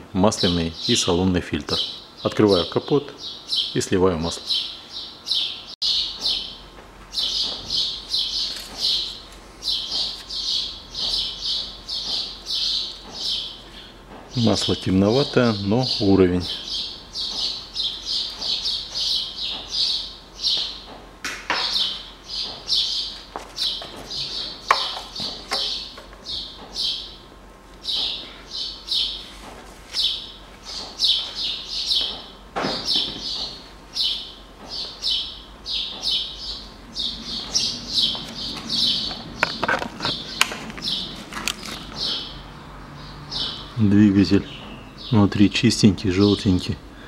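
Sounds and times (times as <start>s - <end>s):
small bird chirping: 4.4s - 14.8s, 15.9s - 20.9s, 21.6s - 29.3s, 29.9s - 45.2s
sharp clicks and knocks: 37.4s - 42.1s.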